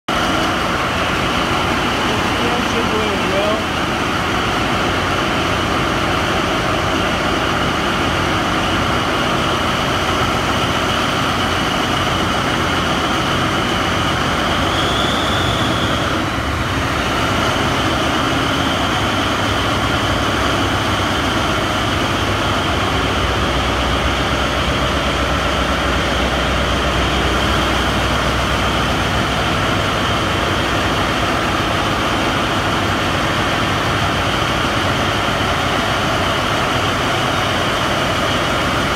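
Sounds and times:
diesel engines rumbling: 0.1 - 38.9
steady high whine: 0.1 - 38.9.

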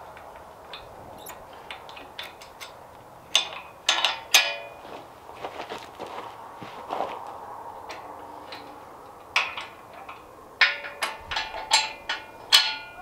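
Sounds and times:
metal fork tines clanking: 0.8 - 4.8, 9.4 - 13.0.

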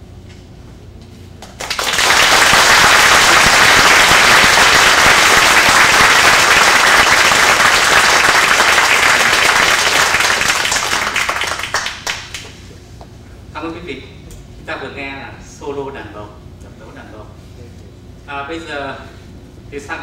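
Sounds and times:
audience applauding: 1.4 - 12.6.

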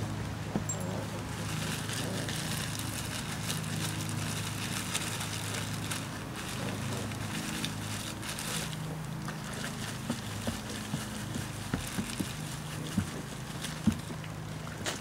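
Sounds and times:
paddle stirring mash: 0.6 - 15.0
plastic bag crinkling: 1.4 - 10.1.

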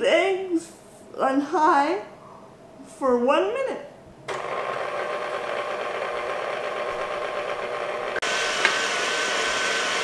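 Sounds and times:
stand mixer whirring: 4.3 - 10.0.

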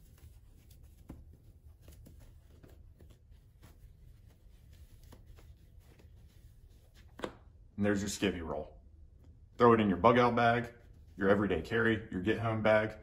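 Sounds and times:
cloth rustling: 0.0 - 7.6
low room hum: 0.0 - 13.0.

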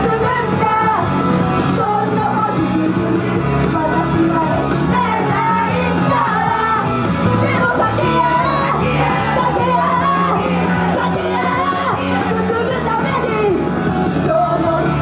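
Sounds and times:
rock-style backing music: 0.0 - 15.0
female group singing: 1.7 - 3.0, 3.8 - 13.6, 14.2 - 15.0
fans shouting along: 4.4 - 13.7.

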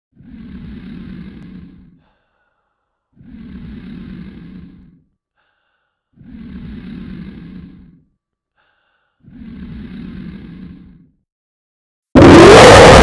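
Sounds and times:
dog snoring: 3.2 - 5.1, 6.2 - 8.1, 9.2 - 11.1.

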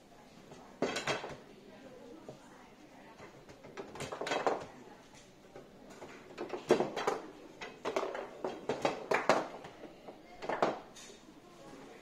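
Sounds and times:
foosball ball clacks: 3.2 - 4.8, 6.0 - 10.9
foosball rods knocking: 3.3 - 4.8, 6.3 - 10.9.

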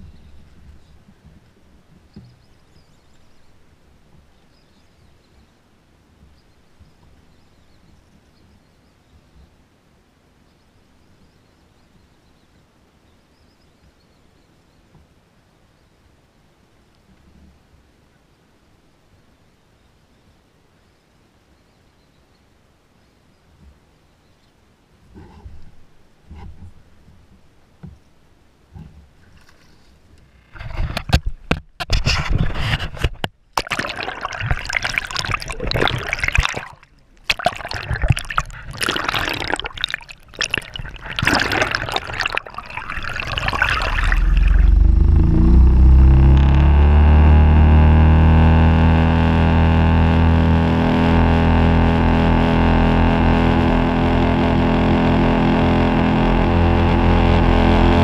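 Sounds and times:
water gurgling and splashing: 33.6 - 47.6
outboard motor running: 33.6 - 58.0.

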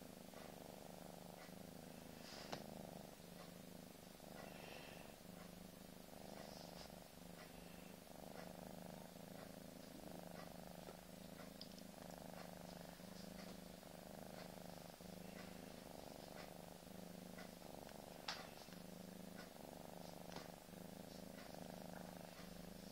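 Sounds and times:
cat purring: 0.0 - 22.9.

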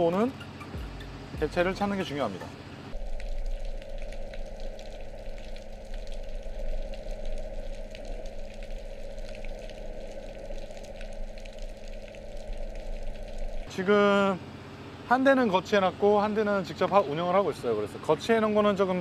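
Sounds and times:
low underwater hum: 0.0 - 19.0
sizzling hiss of water: 2.9 - 13.7.

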